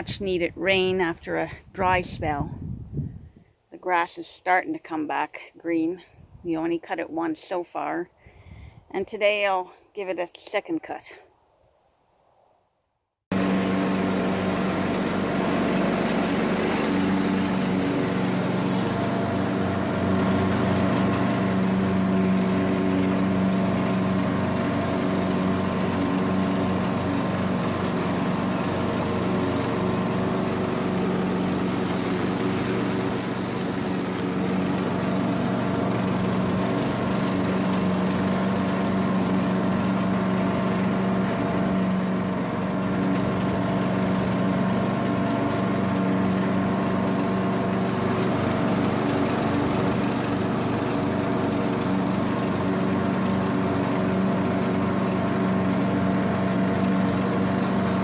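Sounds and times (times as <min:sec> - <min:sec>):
lawn tractor engine running: 0:13.3 - 0:58.0.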